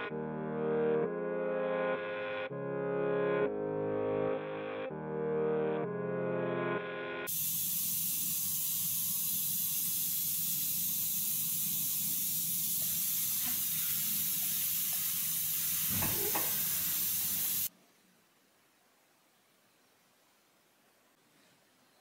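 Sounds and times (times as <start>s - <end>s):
steady hiss: 7.3s - 22.0s.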